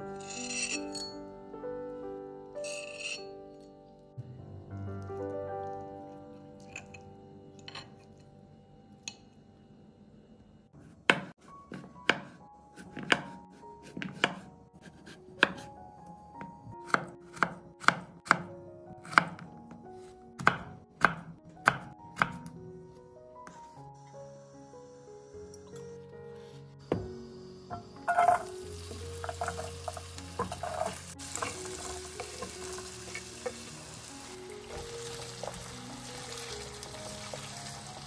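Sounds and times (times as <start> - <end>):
soft background music: 0.0 - 38.0
knife chopping on wooden board: 10.8 - 15.7, 20.4 - 22.4.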